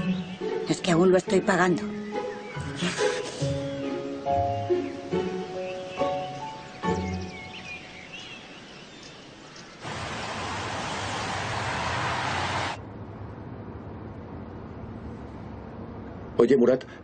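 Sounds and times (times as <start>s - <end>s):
tyre and engine rush: 9.8s - 13.5s.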